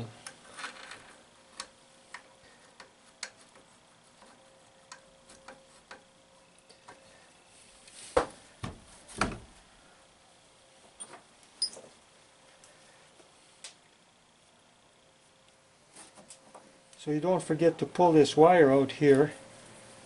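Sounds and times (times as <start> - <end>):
light clicks and taps of metal: 1.5 - 7.0.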